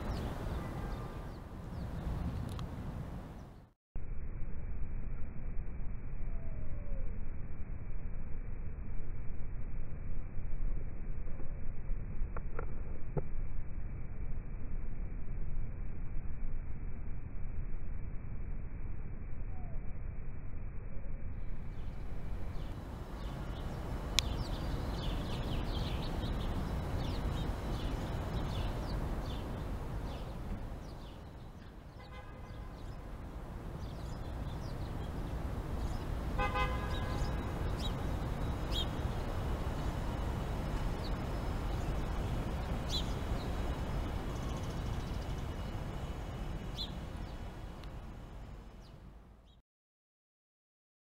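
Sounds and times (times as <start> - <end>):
city traffic rumble: 0.0 - 3.8, 21.4 - 49.6
car horn honking: 32.0 - 32.8, 36.4 - 37.4.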